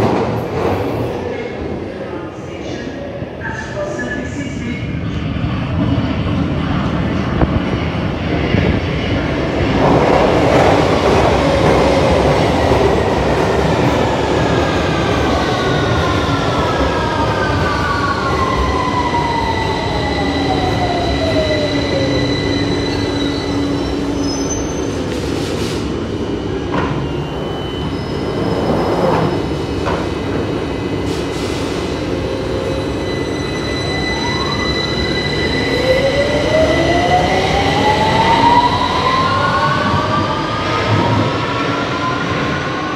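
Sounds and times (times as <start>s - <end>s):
train wheels rumbling on rail: 28.2s - 33.4s.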